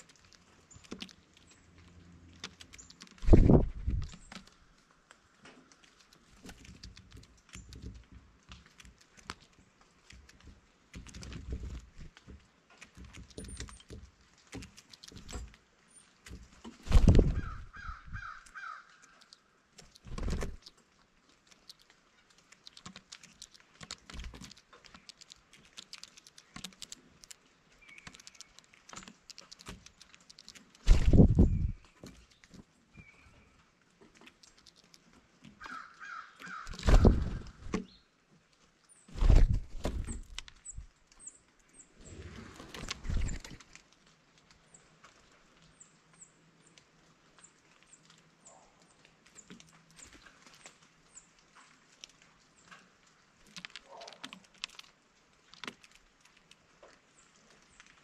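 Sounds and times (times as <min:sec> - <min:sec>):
blue jay calls: 0:17.1 - 0:19.5, 0:35.6 - 0:38.0
beaks tapping on bird feeder: 0:21.5 - 0:33.2, 0:34.0 - 0:37.9.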